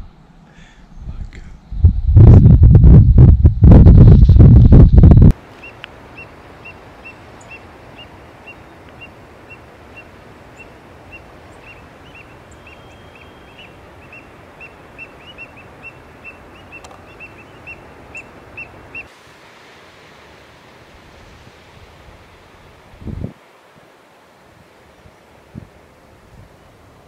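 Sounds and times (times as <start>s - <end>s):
surf: 3.7s - 27.0s
bird chirping: 5.6s - 19.1s.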